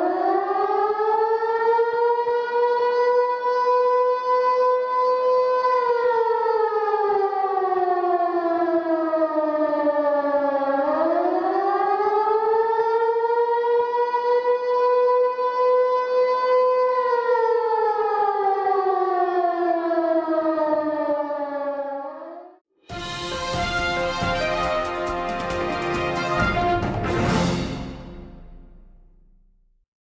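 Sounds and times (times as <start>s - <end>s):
siren wailing: 0.0s - 22.6s.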